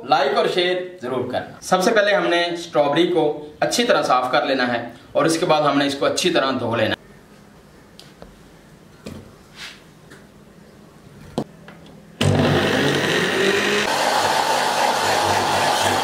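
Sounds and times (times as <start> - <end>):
blender motor running: 12.2 - 16.0.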